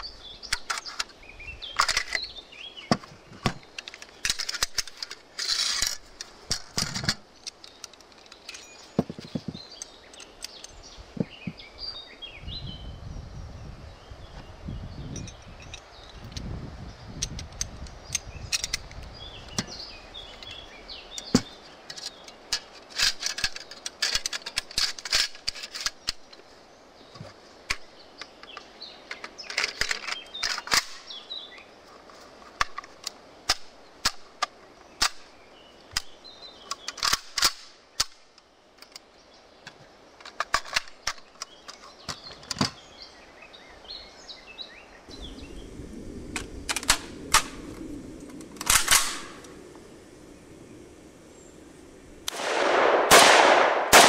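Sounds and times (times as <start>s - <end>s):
faint birds chirping: 0.0s - 53.9s
rifle parts clicking: 0.4s - 2.3s, 3.0s - 10.8s, 20.4s - 26.4s, 27.7s - 31.1s, 35.9s - 42.8s, 48.2s - 49.6s.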